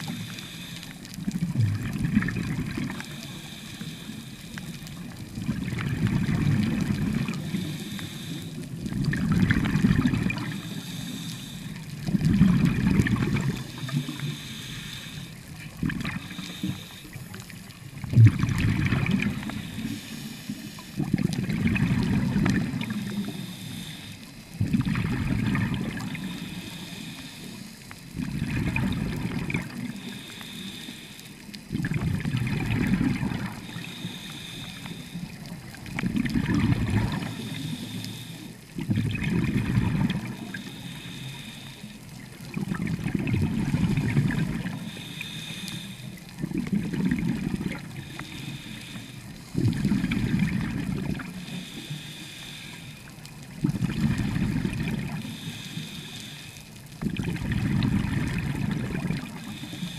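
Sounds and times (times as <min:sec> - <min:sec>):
regulator inhalation hiss: 0:00.0 - 0:01.0, 0:03.1 - 0:04.8, 0:07.4 - 0:08.7, 0:10.4 - 0:11.8, 0:13.6 - 0:15.4, 0:16.2 - 0:17.5, 0:19.4 - 0:21.0, 0:22.9 - 0:24.5, 0:26.2 - 0:28.0, 0:29.9 - 0:31.4, 0:33.6 - 0:35.4, 0:37.2 - 0:38.6, 0:40.3 - 0:42.0, 0:44.7 - 0:46.2, 0:47.9 - 0:49.6, 0:51.4 - 0:53.1, 0:55.2 - 0:56.6, 0:59.3 - 0:59.9
exhaled bubbles underwater: 0:00.0 - 0:30.8, 0:31.4 - 0:41.2, 0:41.8 - 0:52.0, 0:53.0 - 0:55.7, 0:56.8 - 0:59.9.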